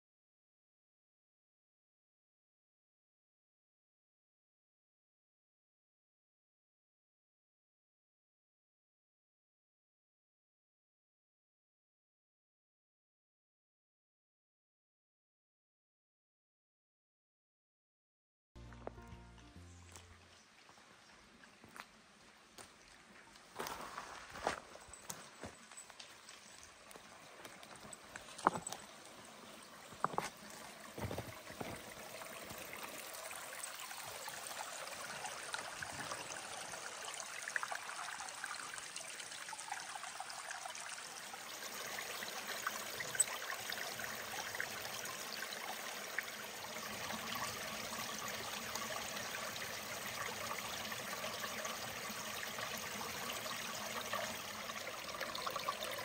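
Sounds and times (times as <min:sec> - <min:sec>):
creek trickling over stones: 0:18.6 - 0:56.0
footsteps on rocks: 0:23.5 - 0:25.6, 0:28.2 - 0:28.7, 0:29.9 - 0:30.4, 0:31.0 - 0:31.8.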